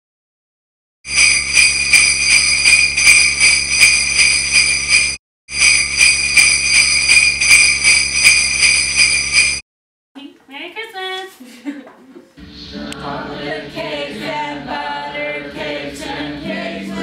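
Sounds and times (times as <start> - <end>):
sleigh bells shaken: 1.1 - 9.6.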